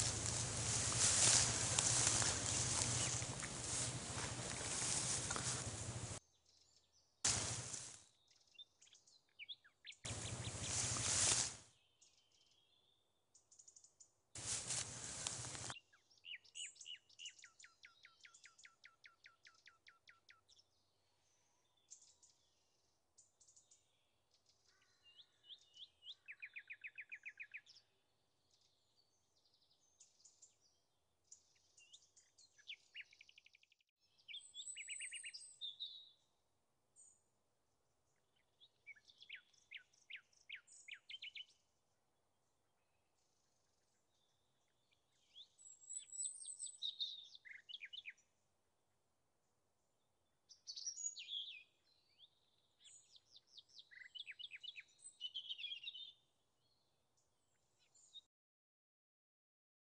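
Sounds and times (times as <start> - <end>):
wild birds calling and singing: 0.0 - 12.9, 44.0 - 48.2, 50.5 - 56.9.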